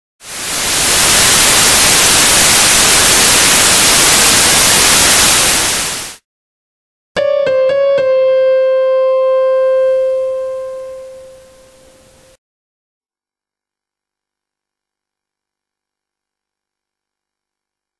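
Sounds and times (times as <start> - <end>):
white-noise static hiss: 0.3 - 6.2, 10.4 - 12.4
keyboard notes: 7.2 - 12.4.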